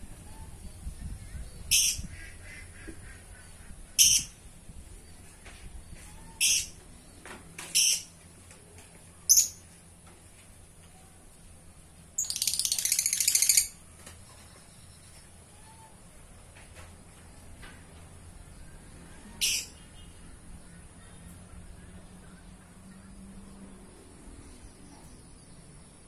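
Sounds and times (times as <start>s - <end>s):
bird chattering: 3.3s - 4.4s, 12.2s - 13.8s
bird calling shrilly: 6.1s - 6.8s.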